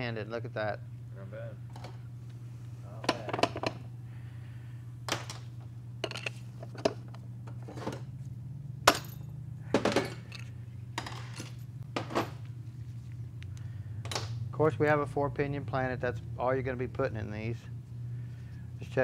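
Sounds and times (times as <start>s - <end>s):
steady low hum: 0.0s - 19.0s
metal parts clinking and knocking: 6.0s - 6.9s, 8.9s - 12.4s.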